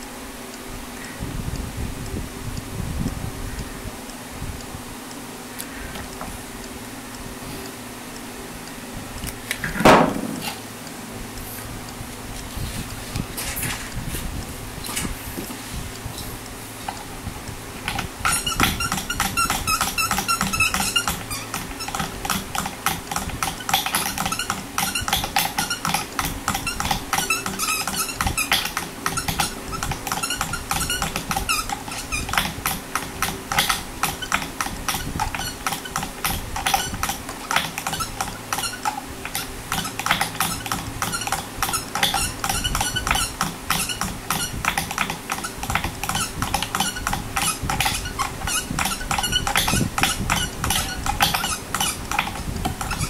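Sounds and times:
guitar strings clicking and squeaking: 17.8s - 53.0s.

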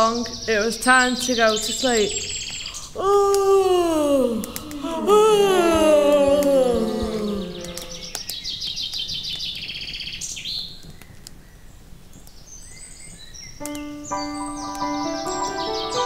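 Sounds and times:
birds chirping: 0.0s - 3.6s, 4.4s - 16.0s
falling voice-like sound: 3.0s - 8.2s.

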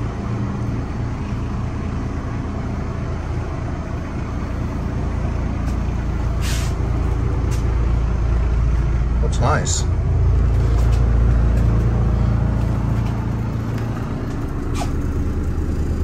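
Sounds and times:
low mechanical hum: 0.0s - 16.0s
brief hiss: 6.4s - 6.8s.

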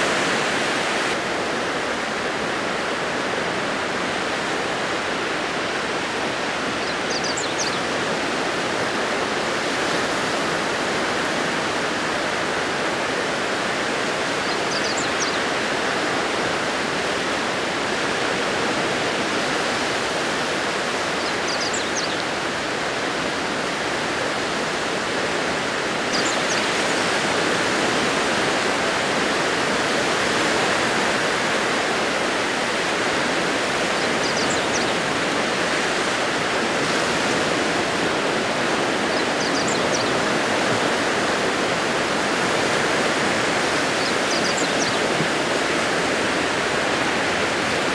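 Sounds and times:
small waves breaking on beach: 0.0s - 47.9s.

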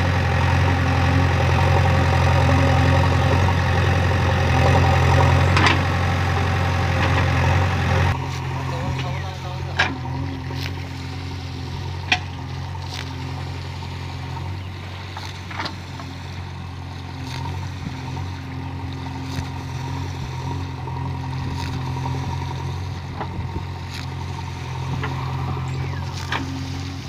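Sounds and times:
diesel engine running: 0.0s - 27.0s.

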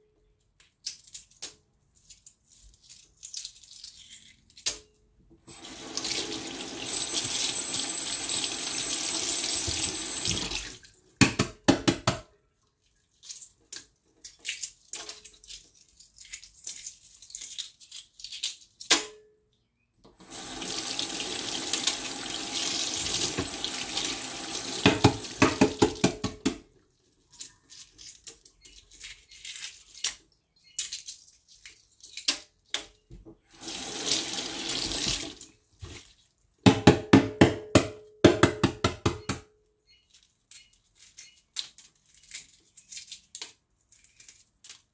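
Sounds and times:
eggshell crackling as peeled: 0.6s - 4.8s, 13.1s - 18.9s
faucet running into a sink: 5.5s - 10.8s, 20.2s - 25.8s, 33.5s - 35.4s.

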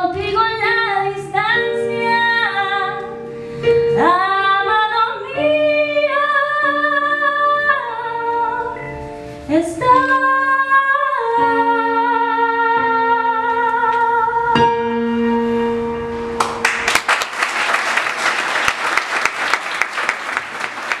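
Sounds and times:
woman singing with vibrato: 4.0s - 8.8s, 9.5s - 14.8s
audience applauding: 16.4s - 21.0s.

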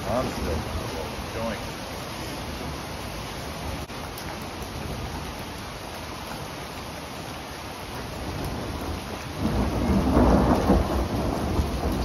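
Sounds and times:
steady rain: 0.0s - 12.0s
rolling thunder rumble: 8.2s - 12.0s.

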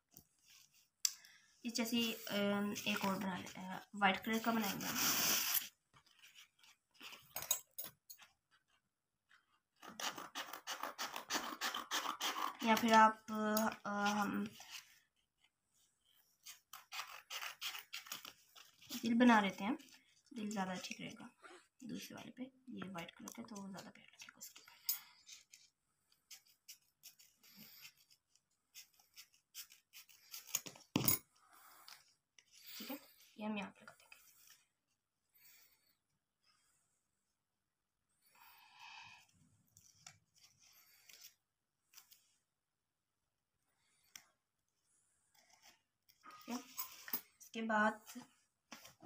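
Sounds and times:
pencil scratching on paper: 9.8s - 12.9s.

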